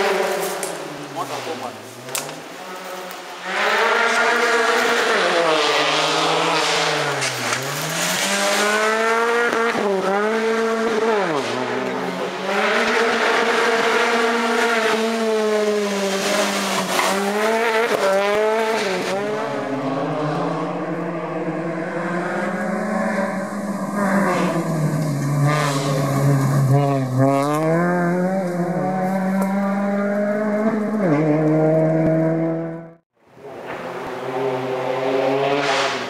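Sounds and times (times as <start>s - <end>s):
rally car engine revving: 0.0s - 36.0s.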